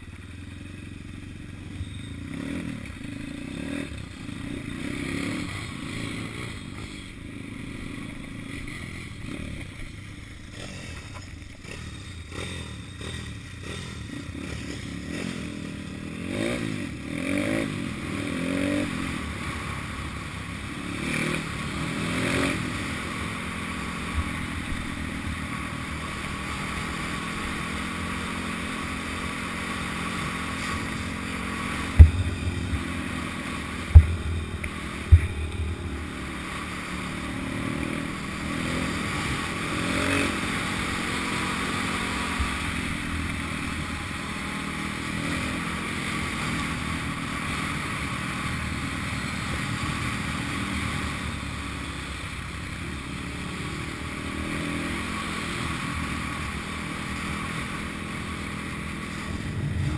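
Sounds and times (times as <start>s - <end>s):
motorbike engine revving: 0.0s - 59.9s
sharp thumps: 30.6s - 37.4s.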